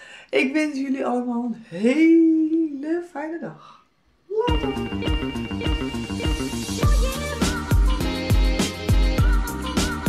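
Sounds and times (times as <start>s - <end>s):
electronic music with kick drum: 4.5s - 10.0s.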